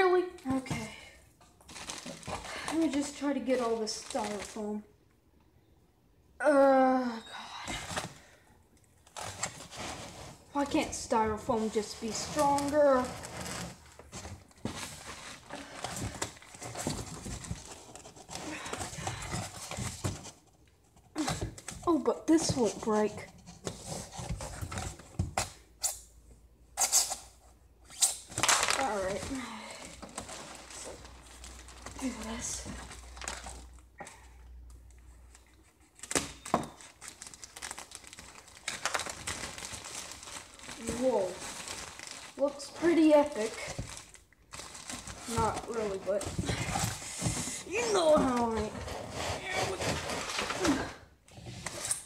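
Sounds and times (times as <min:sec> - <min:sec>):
plastic packing crinkling: 0:01.6 - 0:04.9, 0:09.0 - 0:20.4, 0:28.2 - 0:33.8, 0:34.8 - 0:52.0
styrofoam rubbing in cardboard box: 0:47.0 - 0:50.4.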